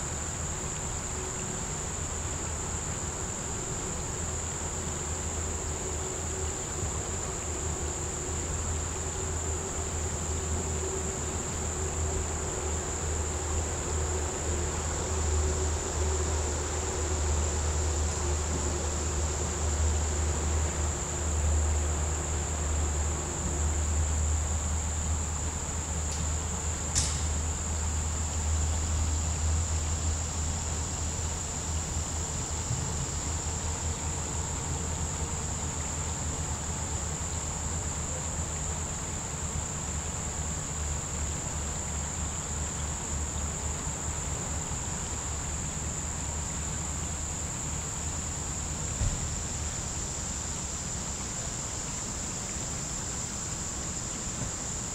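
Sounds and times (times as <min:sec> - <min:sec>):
brief click: 0:27.0 - 0:27.3.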